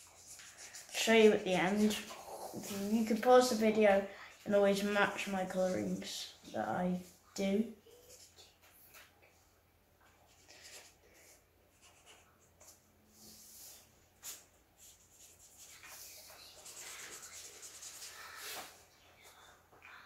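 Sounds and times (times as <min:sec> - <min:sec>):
marker scratching on paper: 0:00.0 - 0:03.7, 0:07.9 - 0:08.4, 0:10.3 - 0:18.7.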